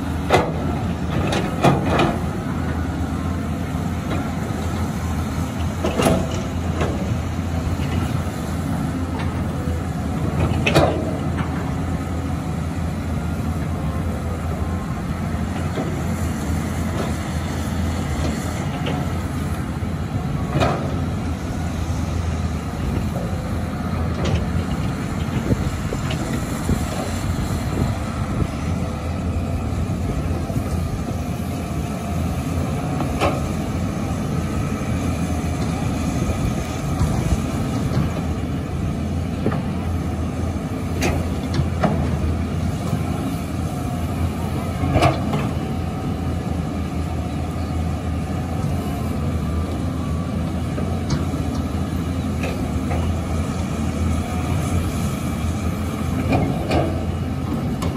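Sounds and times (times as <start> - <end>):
excavator diesel engine running: 0.0 - 57.9.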